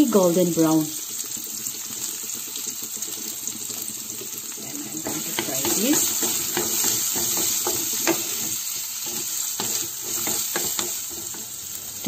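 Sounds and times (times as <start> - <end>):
onions sizzling in oil: 0.0 - 12.0
wooden spatula scraping: 4.9 - 11.6.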